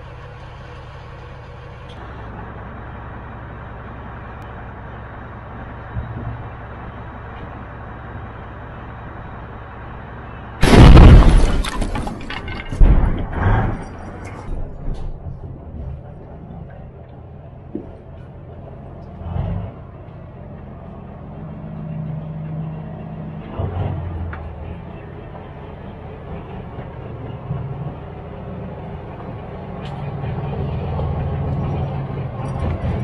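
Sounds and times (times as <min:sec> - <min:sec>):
diesel engine rumbling: 0:00.0 - 0:33.0
tank gun firing blast: 0:10.6 - 0:14.2
loud bang with crackles: 0:10.6 - 0:15.4.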